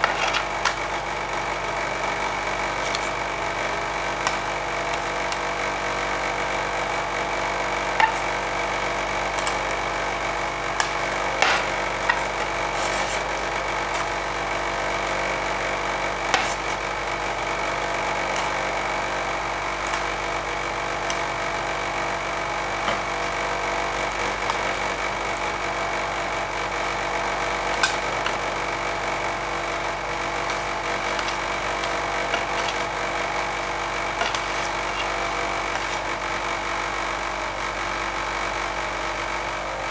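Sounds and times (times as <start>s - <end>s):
steel scrapers chopping on metal plate: 0.0s - 0.8s, 7.8s - 8.5s, 9.2s - 36.2s
refrigeration unit humming: 0.0s - 39.9s.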